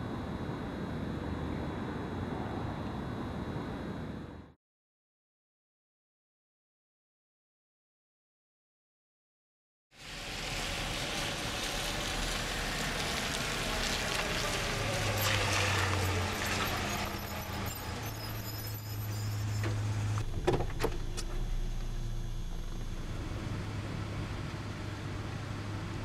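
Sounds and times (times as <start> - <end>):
car engine hum: 10.0 - 26.0
road noise: 10.0 - 26.0.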